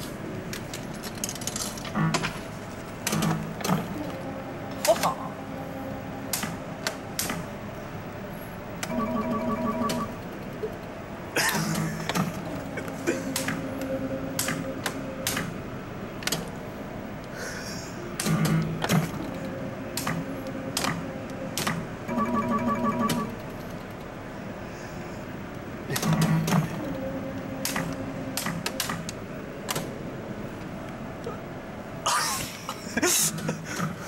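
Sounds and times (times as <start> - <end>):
slot machine button clicks: 8.8 - 10.2, 22.1 - 23.5
electronic beeps: 22.1 - 23.4.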